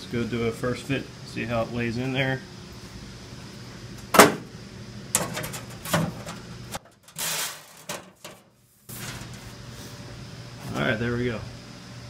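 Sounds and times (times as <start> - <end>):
metal sheet scraping slide: 7.2 - 7.9.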